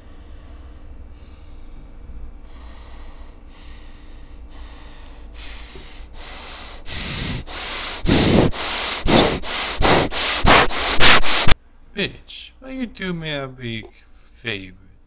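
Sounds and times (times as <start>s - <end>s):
man breathing heavily: 0.0s - 11.6s.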